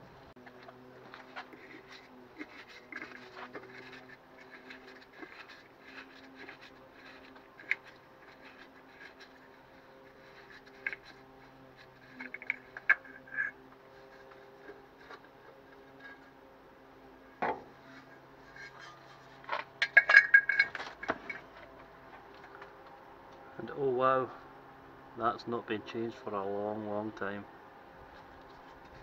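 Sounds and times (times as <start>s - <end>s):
metal cover clicking and scraping: 0.4s - 16.3s, 17.5s - 21.8s
metallic clattering: 17.5s - 21.8s.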